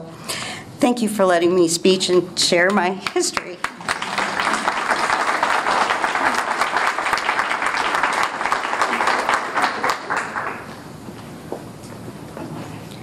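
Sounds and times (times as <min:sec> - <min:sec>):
audience applauding: 0:03.1 - 0:10.8.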